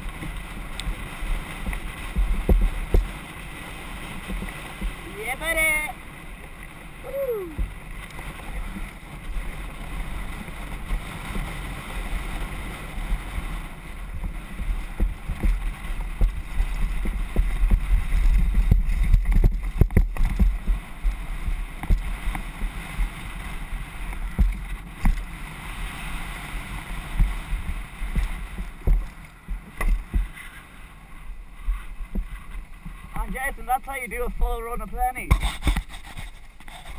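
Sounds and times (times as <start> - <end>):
wind buffeting microphone: 0.0 - 36.9
bike knocks and rattles: 1.6 - 3.3, 14.2 - 22.8, 27.0 - 30.6.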